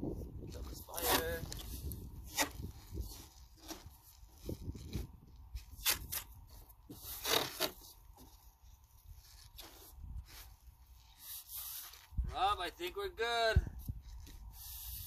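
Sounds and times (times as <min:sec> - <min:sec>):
tape ripping off roll: 0:01.0 - 0:05.0, 0:05.6 - 0:08.4.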